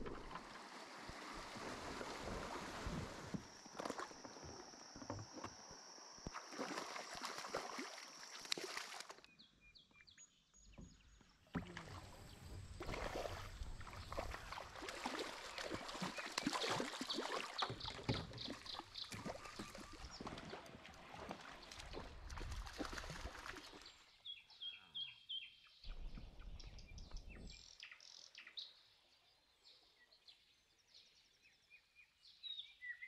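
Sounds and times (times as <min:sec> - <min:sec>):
water lapping around kayak: 0:00.0 - 0:09.3, 0:10.7 - 0:24.4.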